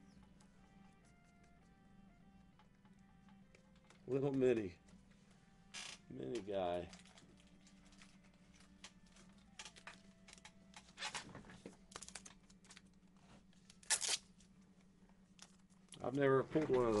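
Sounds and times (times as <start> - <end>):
cards and plastic holders rustling: 6.3 - 14.5, 15.4 - 17.0.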